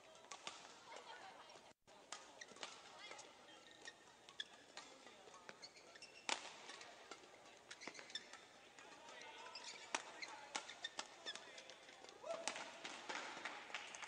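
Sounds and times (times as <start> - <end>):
racket hitting shuttlecock: 0.1 - 14.0
shoes squeaking on floor: 2.2 - 11.9.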